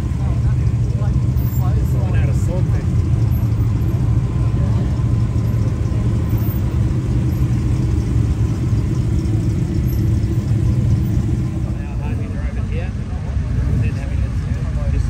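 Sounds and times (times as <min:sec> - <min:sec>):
sports car engine at low revs: 0:00.0 - 0:15.0.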